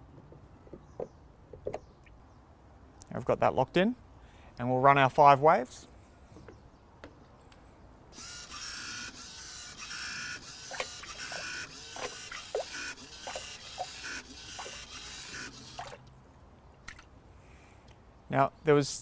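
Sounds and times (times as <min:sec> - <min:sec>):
wave paddle whirring: 0:08.9 - 0:16.1
water splashing and slapping: 0:10.7 - 0:14.0, 0:14.6 - 0:14.9, 0:15.7 - 0:16.1.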